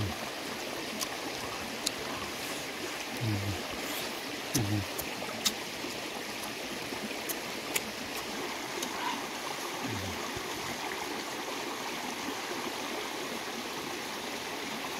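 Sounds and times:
low voice hum: 0:00.0 - 0:00.2, 0:01.4 - 0:05.1, 0:08.8 - 0:10.4
stream flowing over rocks: 0:00.0 - 0:14.9.

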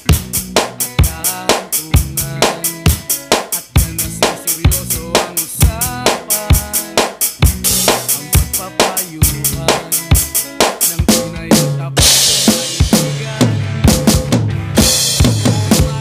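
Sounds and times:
electronic drum kit beat: 0:00.0 - 0:16.0
recorded song playing: 0:00.0 - 0:16.0.

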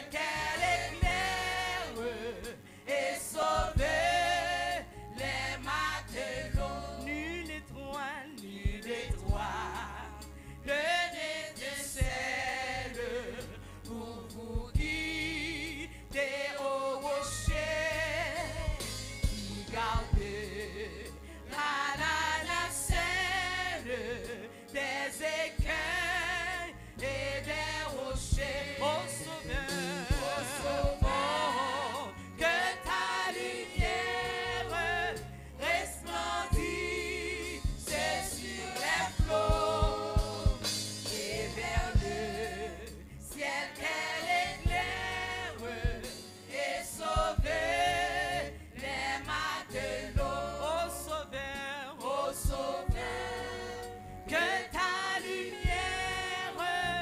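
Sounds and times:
backing singers: 0:00.0 - 0:07.0, 0:24.8 - 0:51.4, 0:52.0 - 0:57.0
bass notes: 0:00.0 - 0:57.0
woman singing lead: 0:28.3 - 0:35.0
drum beat: 0:29.6 - 0:31.3, 0:37.7 - 0:42.2.

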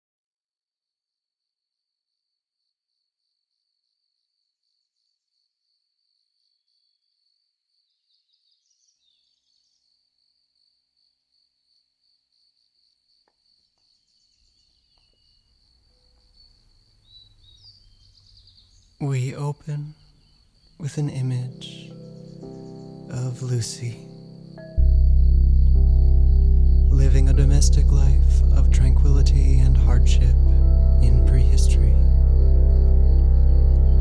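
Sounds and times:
insects chirping: 0:02.6 - 0:34.0
low rumble: 0:24.7 - 0:34.0.

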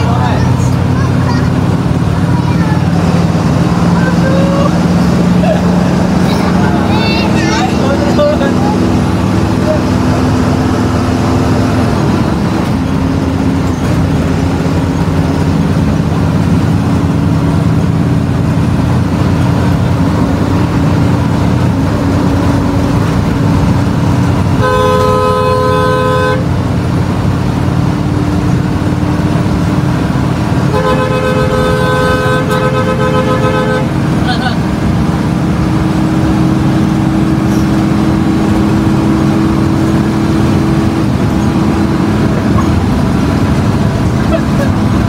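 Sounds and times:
bus engine running: 0:00.0 - 0:45.0
bus horn blasts: 0:24.4 - 0:26.7, 0:30.6 - 0:34.6.

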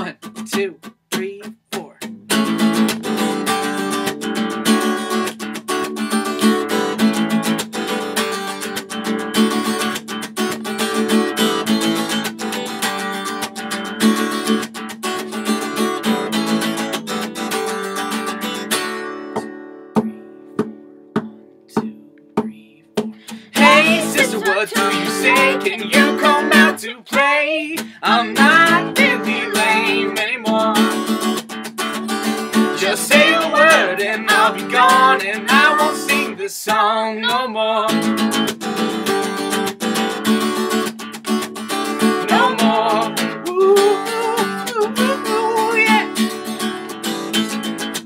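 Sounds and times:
acoustic guitar strumming: 0:00.0 - 0:48.0
woman singing: 0:23.6 - 0:31.1, 0:32.8 - 0:37.6, 0:42.2 - 0:46.2.

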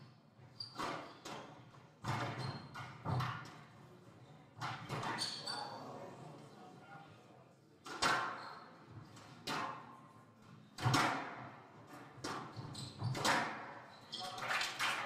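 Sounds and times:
racket hitting squash ball: 0:10.8 - 0:13.7.

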